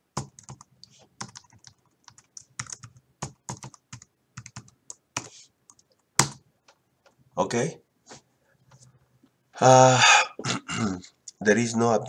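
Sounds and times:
computer keyboard keys tapped: 0.1s - 7.2s.

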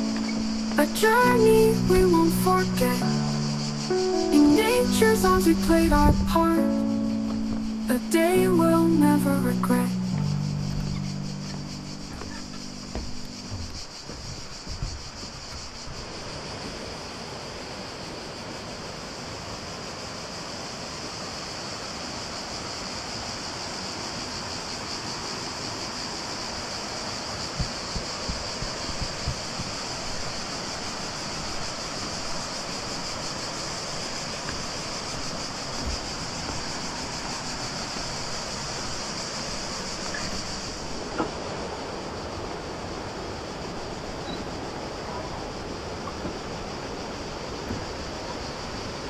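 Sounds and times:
rushing river water: 0.0s - 49.0s
short low thumps: 10.2s - 15.1s, 27.6s - 30.4s.

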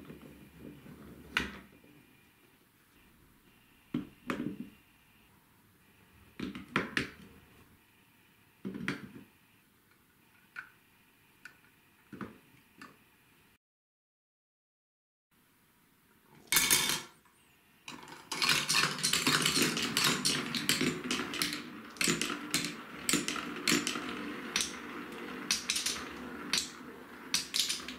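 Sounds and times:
wooden pieces knocking and clicking: 17.9s - 27.9s.

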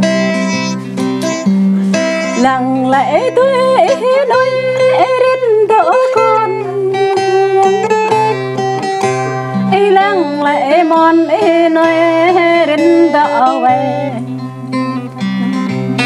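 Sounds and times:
person singing long wavering notes: 0.0s - 8.2s
acoustic guitar playing: 0.0s - 16.0s.

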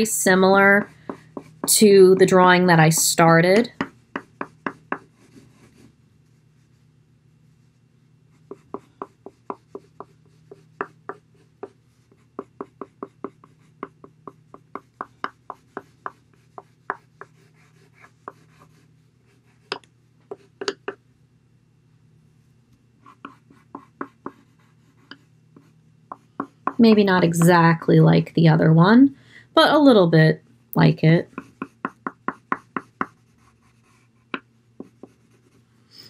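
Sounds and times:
pencil scratching on paper: 0.0s - 6.9s, 7.6s - 20.7s, 23.0s - 27.5s, 31.3s - 35.6s.

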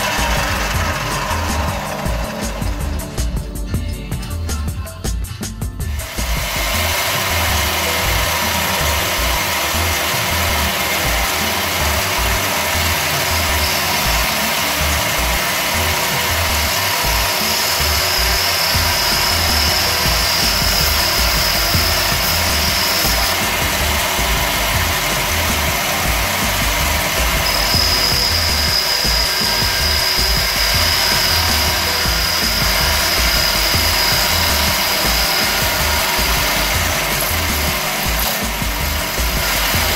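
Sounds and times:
metal lathe running: 0.0s - 4.6s, 5.8s - 39.9s
tool scraping spinning metal: 0.0s - 4.8s, 5.8s - 39.9s
thin high whistle: 6.7s - 25.7s, 27.2s - 38.4s.

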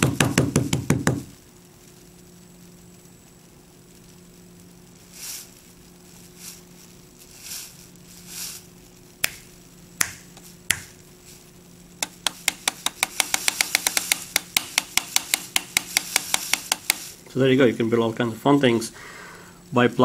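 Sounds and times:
sharp hand claps: 10.0s - 10.9s.

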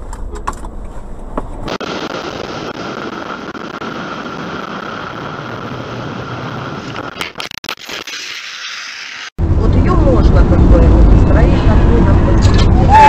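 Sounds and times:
constant whine: 0.0s - 13.0s
car in-cabin rumble: 9.4s - 13.0s.

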